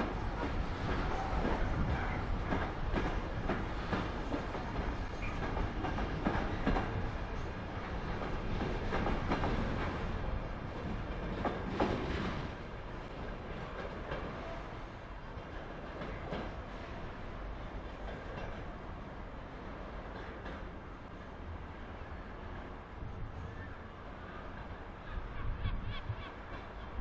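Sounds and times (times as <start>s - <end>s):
train wheels clacking on track: 0.0s - 19.0s, 19.8s - 20.8s
freight train rumble: 0.0s - 27.0s.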